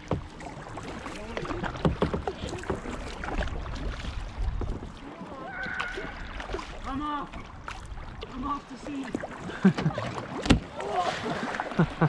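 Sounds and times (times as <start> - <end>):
paddles splashing in water: 0.0 - 12.0
water washing along hull: 0.0 - 12.0.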